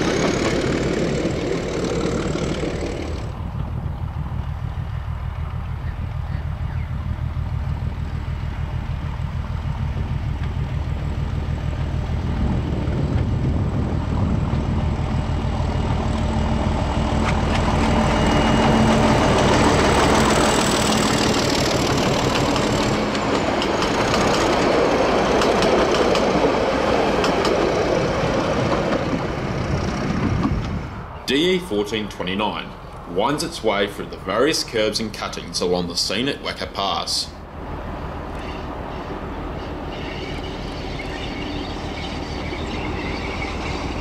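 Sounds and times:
train wheels clickety-clack: 0:00.0 - 0:11.2, 0:15.7 - 0:30.9
diesel locomotive engine throbbing: 0:00.0 - 0:44.0.

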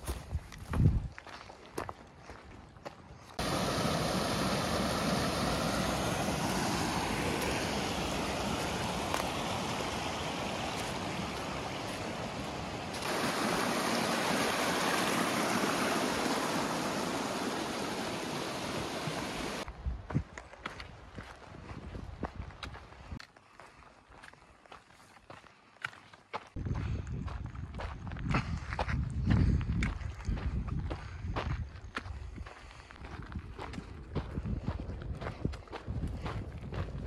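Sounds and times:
steady rushing noise: 0:03.4 - 0:19.7.

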